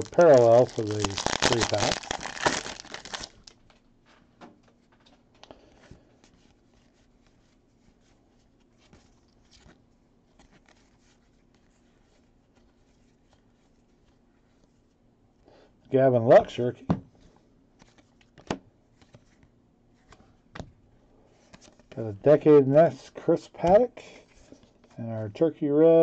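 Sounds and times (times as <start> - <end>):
trading cards flipped by hand: 17.8 - 20.8, 21.4 - 22.0.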